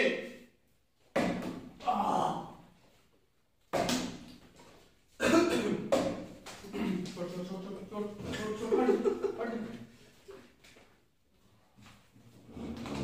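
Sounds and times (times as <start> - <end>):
man coughing hard: 5.2 - 5.9.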